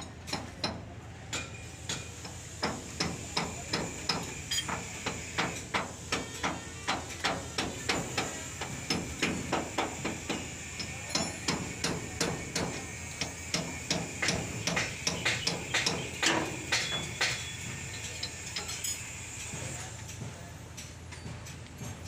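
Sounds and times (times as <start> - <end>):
hammer blows: 2.6 - 17.9.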